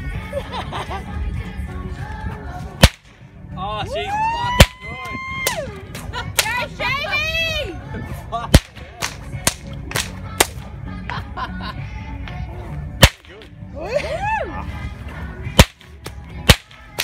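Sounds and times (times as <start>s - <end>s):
whip cracking: 2.8s - 3.2s, 4.6s - 4.8s, 8.5s - 10.6s, 13.0s - 13.5s, 15.5s - 17.0s.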